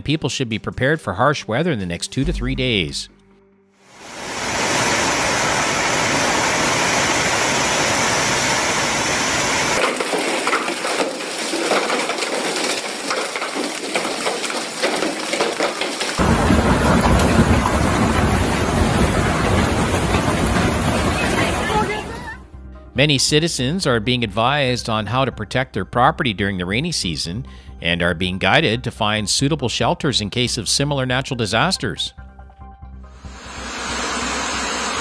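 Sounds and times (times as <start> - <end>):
hail and heavy rain: 4.1 - 22.3
hailstones clicking on pavement: 9.8 - 22.2.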